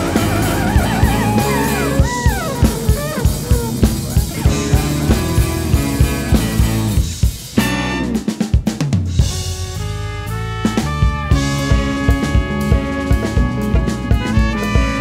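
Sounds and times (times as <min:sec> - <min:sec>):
baritone saxophone solo: 0:00.0 - 0:07.0, 0:07.6 - 0:08.4, 0:09.4 - 0:15.0
bass drums and percussion: 0:00.0 - 0:15.0
full-band hit: 0:00.0 - 0:15.0.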